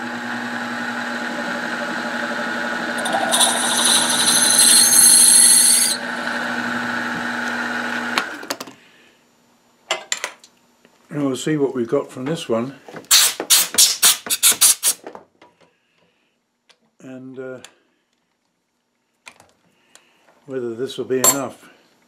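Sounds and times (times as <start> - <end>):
drill press motor humming: 0.0 - 8.5
drill bit cutting into brass: 3.0 - 6.1.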